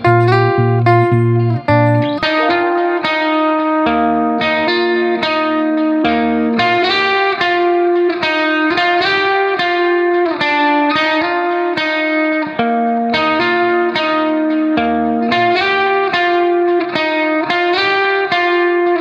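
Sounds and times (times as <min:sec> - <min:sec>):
plucked guitar melody: 0:00.0 - 0:19.0.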